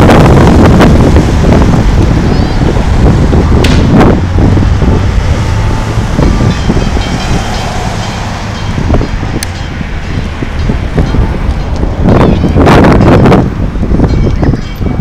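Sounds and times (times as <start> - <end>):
street traffic: 0.0 - 15.0
wind rumbling on microphone: 0.0 - 15.0
car passing close by: 1.0 - 12.2.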